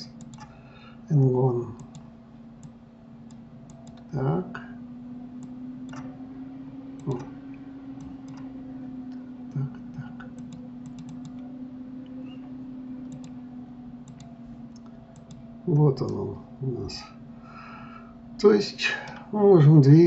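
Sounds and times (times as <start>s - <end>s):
low hum: 0.0s - 20.0s
mouse and keyboard clicks: 10.4s - 11.4s.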